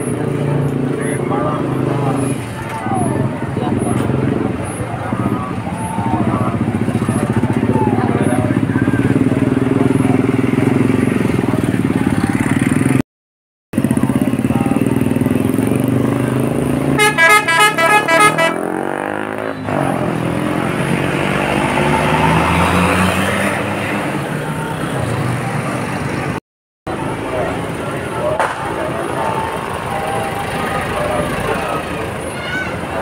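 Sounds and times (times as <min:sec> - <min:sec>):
bus engine running: 0:00.0 - 0:13.0, 0:13.8 - 0:18.7, 0:19.3 - 0:33.0
road traffic noise: 0:00.0 - 0:13.1, 0:13.7 - 0:33.0
musical bus horn toots: 0:17.0 - 0:18.7.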